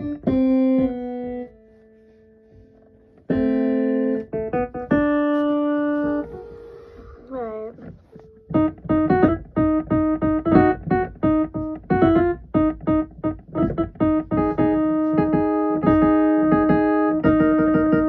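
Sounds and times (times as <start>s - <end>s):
electric keyboard notes: 0.0s - 18.0s.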